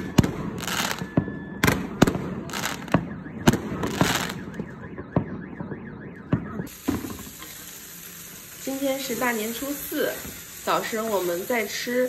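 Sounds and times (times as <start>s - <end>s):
fireworks crackling: 0.0s - 5.2s, 6.3s - 12.0s
fireworks bangs: 0.0s - 8.5s.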